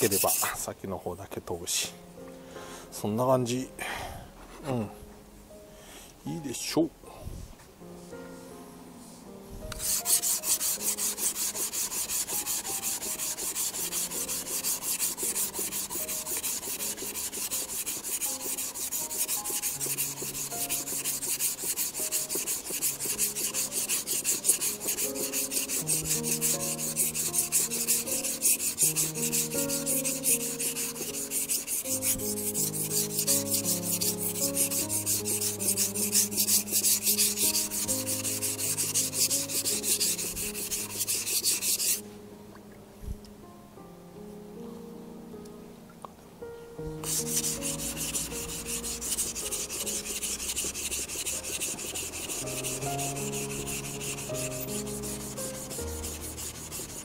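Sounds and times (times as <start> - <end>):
knife scraping on whetstone: 0.0 - 0.6, 9.7 - 42.0, 47.0 - 57.0.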